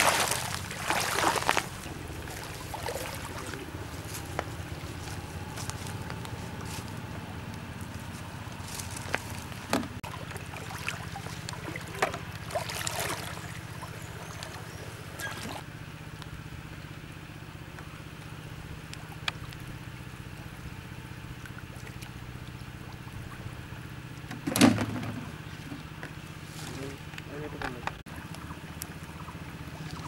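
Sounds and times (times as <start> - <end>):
loud splash: 0.0 - 3.6, 10.1 - 13.6
water splashing and trickling: 0.0 - 15.7, 18.2 - 27.1, 28.1 - 30.0
steady low hum: 0.0 - 30.0.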